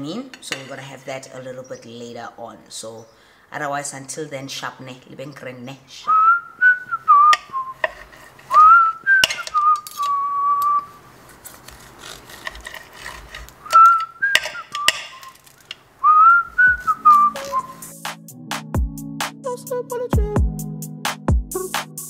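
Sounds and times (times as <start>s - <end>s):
person whistling a tune: 6.1s - 7.8s, 8.6s - 10.9s, 13.7s - 15.3s, 16.0s - 18.0s.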